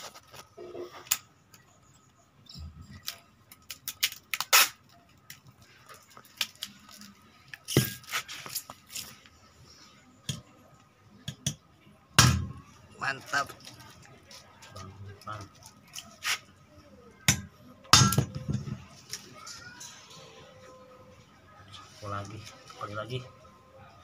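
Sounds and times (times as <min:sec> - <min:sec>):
packing tape ripping off roll: 0:03.0 - 0:05.0
tape crackling: 0:03.0 - 0:09.4.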